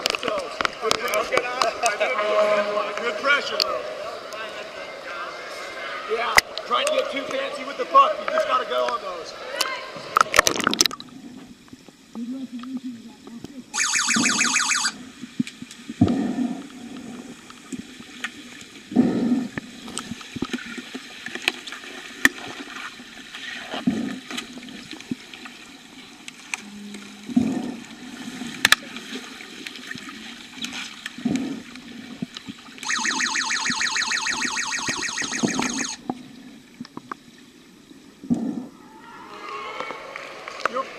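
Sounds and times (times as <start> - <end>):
fast-pulsing buzzer tone: 13.8 - 15.0, 32.8 - 36.0.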